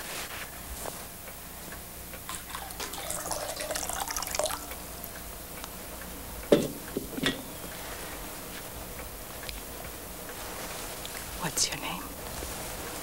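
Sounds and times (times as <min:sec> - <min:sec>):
water splashing into metal basin: 0:02.3 - 0:04.8.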